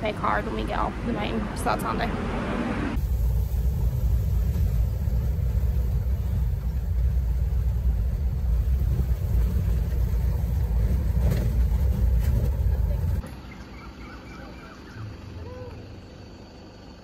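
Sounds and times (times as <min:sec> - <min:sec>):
steady low rumble: 0:00.0 - 0:13.2.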